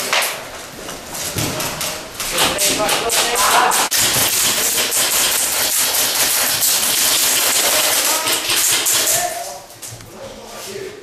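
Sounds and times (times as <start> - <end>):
rapid airsoft shots: 2.3 - 9.4.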